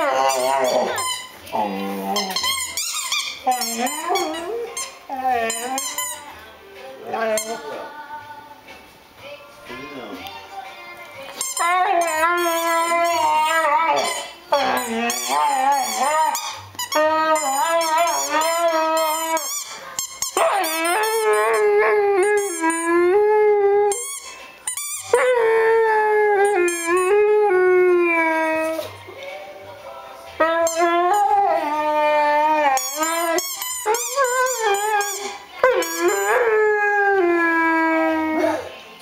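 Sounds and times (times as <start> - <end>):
dog howling and moaning: 0.0 - 2.4, 3.4 - 5.9, 11.6 - 19.8, 20.4 - 24.0, 25.1 - 29.0, 30.4 - 38.8.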